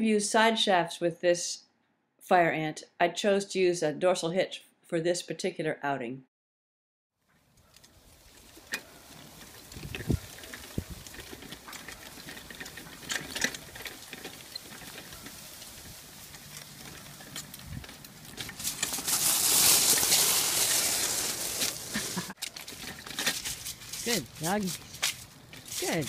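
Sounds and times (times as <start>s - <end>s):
wheels rolling over grass: 7.3s - 26.0s
crunching over gravel: 7.4s - 26.0s.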